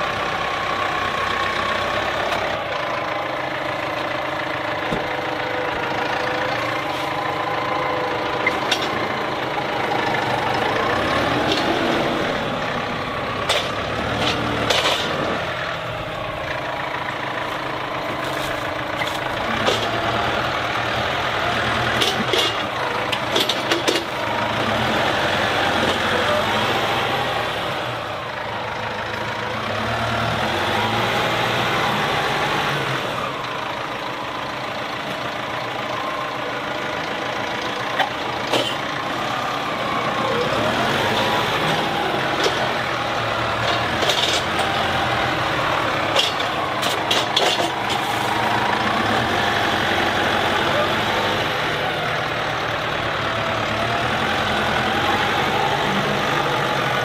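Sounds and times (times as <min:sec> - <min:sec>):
tractor engine revving: 0:00.0 - 0:57.0
sharp metallic clanks: 0:38.0 - 0:38.9, 0:43.6 - 0:44.8, 0:46.0 - 0:48.2.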